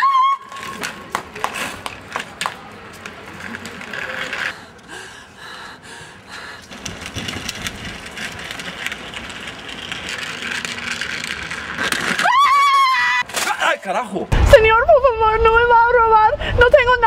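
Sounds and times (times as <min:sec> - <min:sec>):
street noise: 0:00.0 - 0:17.0
suitcase wheels rattling on pavement: 0:00.5 - 0:04.6, 0:06.4 - 0:12.9.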